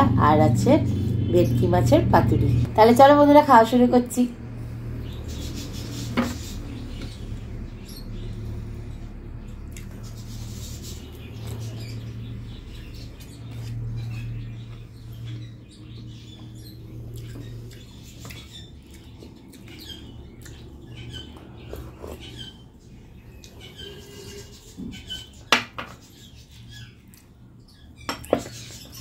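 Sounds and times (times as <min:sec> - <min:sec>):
steady low hum: 0:00.0 - 0:25.4
chewing and smacking: 0:09.6 - 0:10.2, 0:17.0 - 0:22.4.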